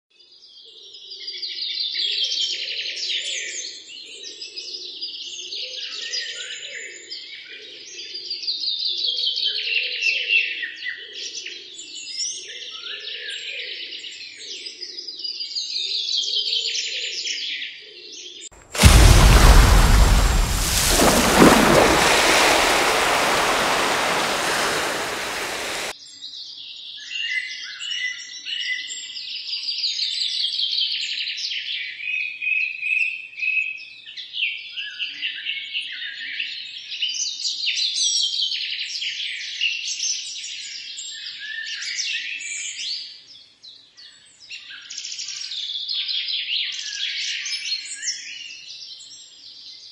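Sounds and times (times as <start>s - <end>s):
splash into river water: 18.6s - 25.9s.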